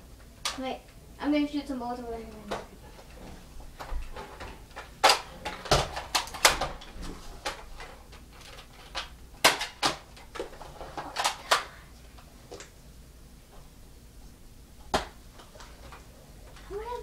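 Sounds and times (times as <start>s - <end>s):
toy blasters clacking and snapping: 4.7s - 6.8s, 7.4s - 11.7s.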